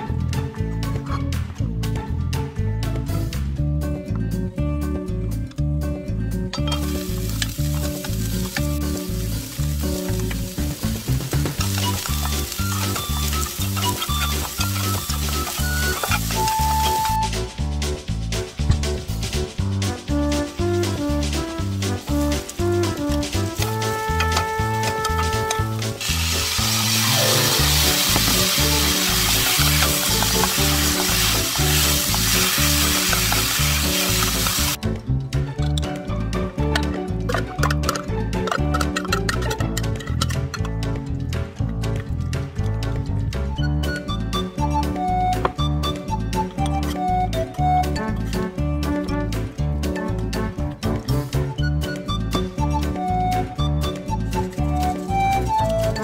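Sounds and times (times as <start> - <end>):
background music with steady beat: 0.0 - 56.0
vegetables sizzling in hot oil: 6.8 - 17.2, 25.9 - 34.8.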